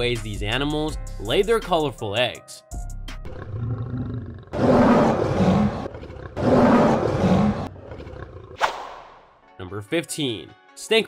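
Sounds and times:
lion roaring: 3.2s - 8.6s.

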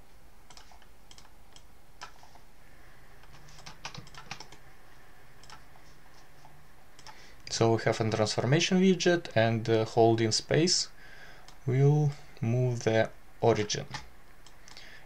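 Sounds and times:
low steady hum: 0.0s - 15.0s
keyboard and mouse clicks: 0.5s - 2.4s, 3.2s - 4.6s, 5.4s - 5.7s, 7.0s - 7.2s.

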